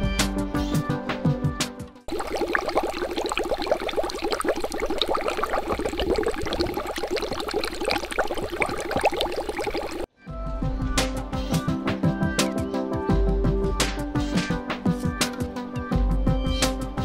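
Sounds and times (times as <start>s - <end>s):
water bubbling rapidly: 2.1s - 10.1s.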